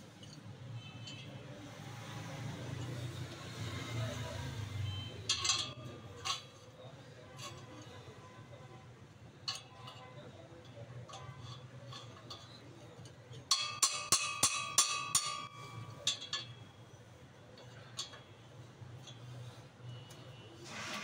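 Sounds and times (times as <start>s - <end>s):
wrench clanking on metal: 4.9s - 6.7s, 9.4s - 16.6s.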